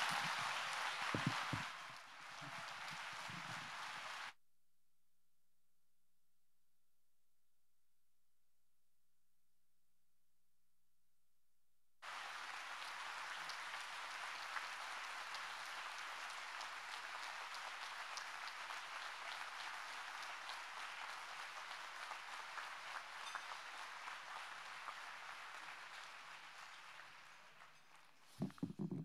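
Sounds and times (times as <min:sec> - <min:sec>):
large audience applauding: 0:00.0 - 0:04.3, 0:12.0 - 0:29.0.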